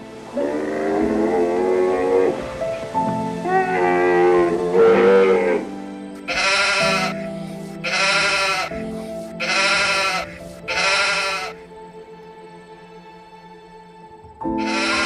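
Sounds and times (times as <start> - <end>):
background music: 0.0 - 15.0
animal bleating: 6.3 - 8.8, 9.4 - 11.6, 14.6 - 15.0.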